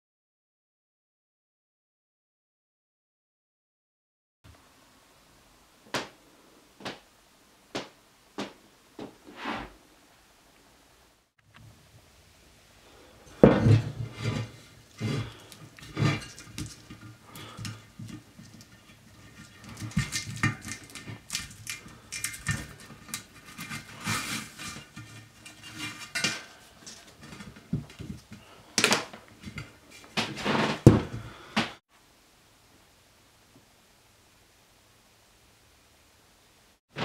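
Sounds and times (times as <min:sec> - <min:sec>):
metal wheel rim clanking on bench: 0:13.3 - 0:28.2.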